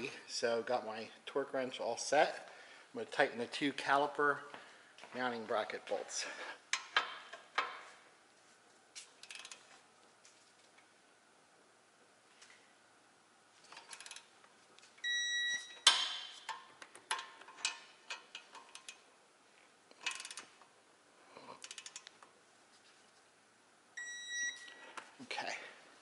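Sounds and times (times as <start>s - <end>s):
ratchet clicks: 9.2s - 9.6s, 13.7s - 14.3s, 17.0s - 19.0s, 19.9s - 20.5s, 21.6s - 22.2s
torque wrench beep: 15.0s - 15.9s, 24.0s - 24.8s.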